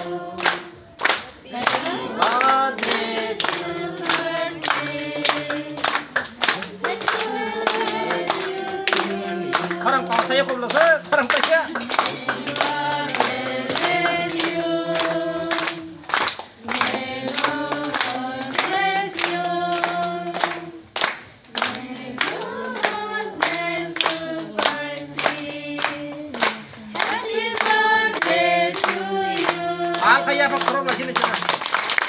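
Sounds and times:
group of people singing: 0:00.0 - 0:31.5
hand clapping: 0:00.0 - 0:32.0.

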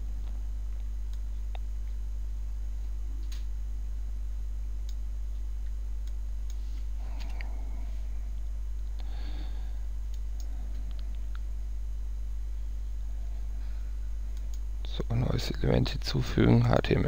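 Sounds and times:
steady low hum: 0:00.0 - 0:17.0
soft breaths: 0:06.5 - 0:11.4, 0:13.0 - 0:14.5
computer mouse clicks: 0:14.3 - 0:14.6.

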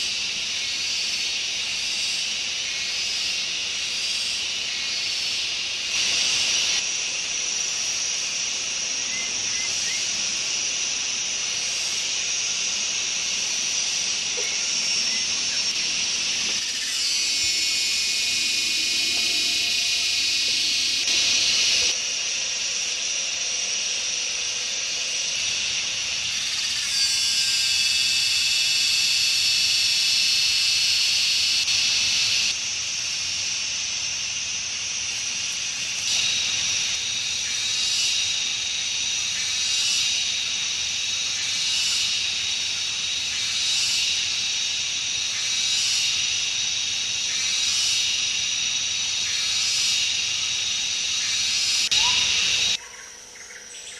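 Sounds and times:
insects shrilling in chorus: 0:00.0 - 0:53.9.

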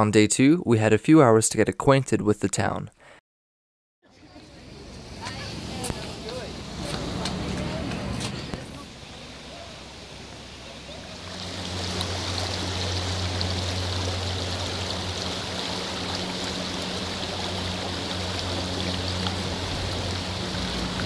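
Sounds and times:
low steady hum: 0:04.1 - 0:21.0
water rushing over stones: 0:08.3 - 0:21.0.

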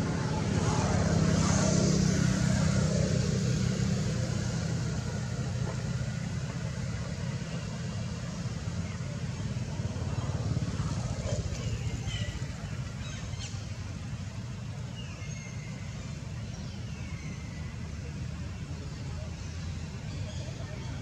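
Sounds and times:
motor vehicle passing: 0:00.0 - 0:14.8.

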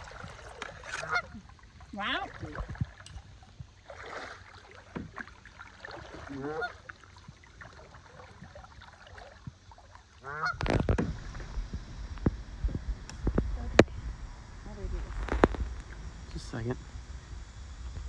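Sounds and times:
geese honking: 0:01.0 - 0:01.3, 0:06.4 - 0:06.8, 0:10.2 - 0:10.6.

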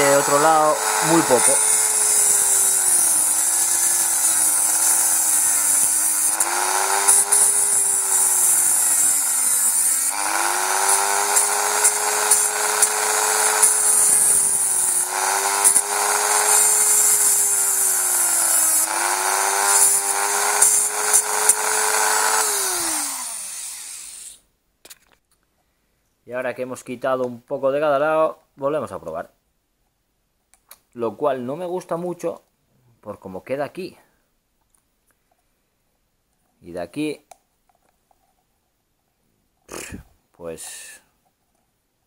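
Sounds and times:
rotary tool cutting plastic: 0:00.0 - 0:24.4.

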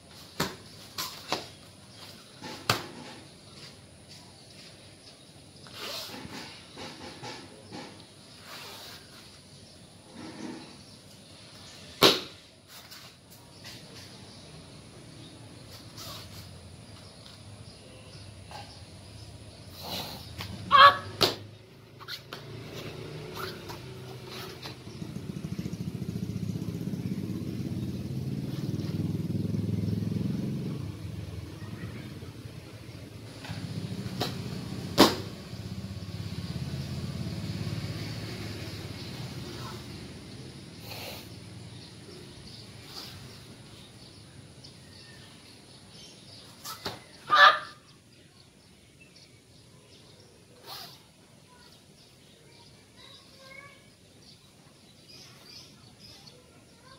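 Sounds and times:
vehicle engine passing: 0:20.5 - 0:43.8
faint bird chirps: 0:40.7 - 0:56.9.

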